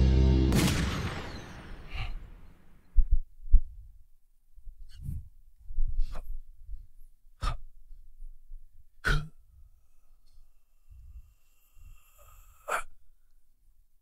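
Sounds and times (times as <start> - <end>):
low thumps: 0.0 - 3.7.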